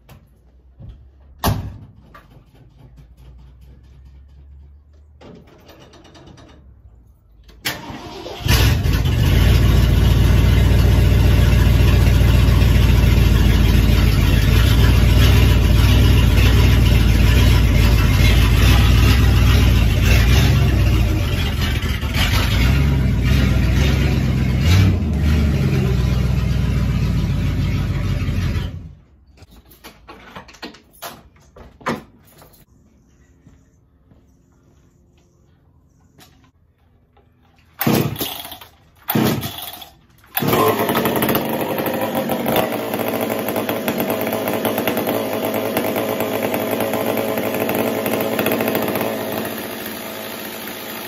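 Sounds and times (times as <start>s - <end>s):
pickup truck engine running: 8.5s - 28.7s.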